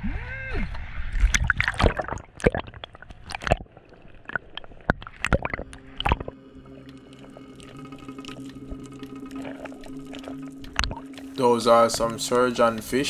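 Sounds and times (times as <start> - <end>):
water splashing and bubbling: 0.0 - 13.0
faint underwater wash: 0.8 - 13.0
background music tones: 5.4 - 13.0.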